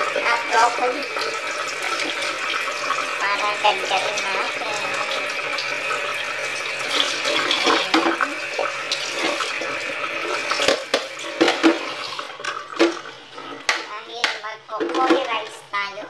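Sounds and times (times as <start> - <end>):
tap running into metal sink: 0.0 - 15.5
knocks and clinks in sink: 7.5 - 8.3, 10.6 - 15.4.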